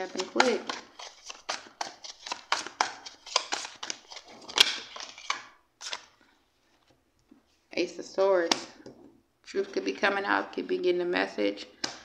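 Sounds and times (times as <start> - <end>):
cards being shuffled: 0.0 - 6.2.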